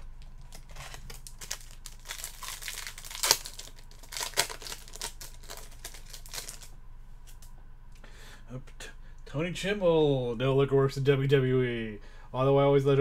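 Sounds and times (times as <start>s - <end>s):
card pack wrapper crinkling: 0.2s - 6.7s.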